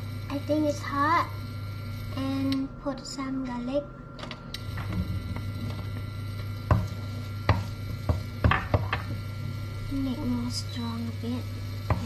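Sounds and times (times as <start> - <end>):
steady low hum: 0.0 - 12.0
wooden spatula knocking on pan: 6.7 - 9.2.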